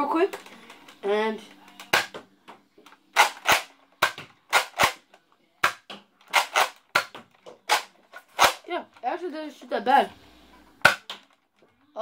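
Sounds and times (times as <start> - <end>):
toy blaster pumped and fired: 3.2 - 5.0, 5.7 - 7.1, 7.7 - 8.6.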